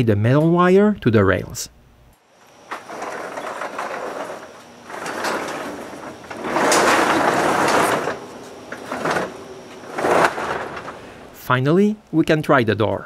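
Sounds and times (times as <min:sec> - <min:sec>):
garage door rollers rumbling: 0:02.4 - 0:12.0.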